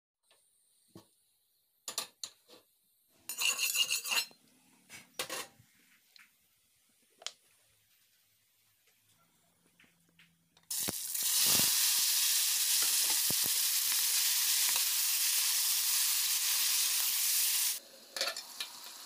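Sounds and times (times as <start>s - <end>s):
metal kitchenware clinking: 3.3s - 4.4s.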